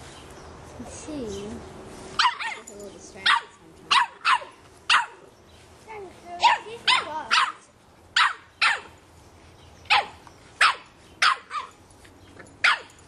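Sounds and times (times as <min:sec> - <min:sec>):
puppy yapping: 0:03.3 - 0:05.2, 0:06.4 - 0:07.6, 0:08.2 - 0:08.9, 0:09.9 - 0:11.8, 0:12.6 - 0:13.0.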